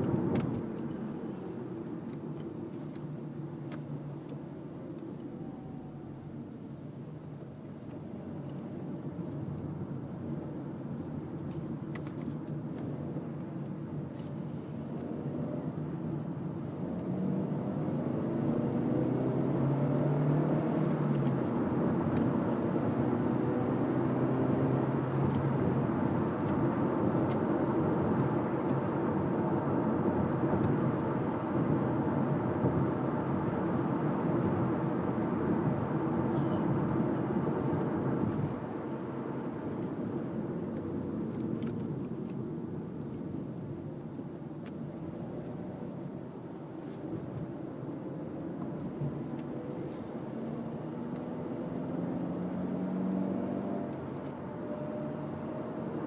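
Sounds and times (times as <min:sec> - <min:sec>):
car engine accelerating: 0:16.7 - 0:42.3, 0:47.1 - 0:56.0.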